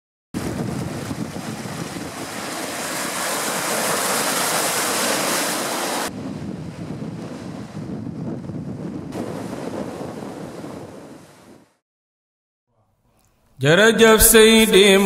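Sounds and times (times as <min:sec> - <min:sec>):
surf splashing over rocks: 0:00.4 - 0:06.1.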